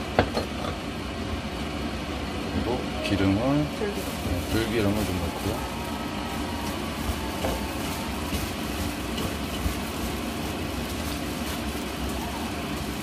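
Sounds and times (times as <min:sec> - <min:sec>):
low background hum: 0:00.0 - 0:13.0
food rustling and squishing in bowl: 0:03.9 - 0:13.0.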